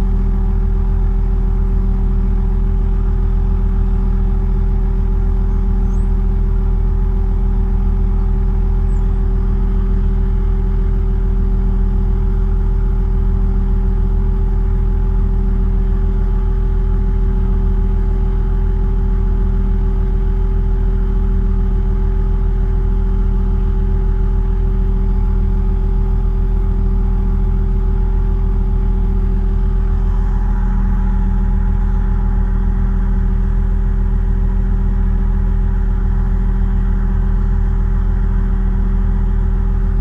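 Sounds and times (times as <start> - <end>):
diesel engine droning: 21.8 - 40.0.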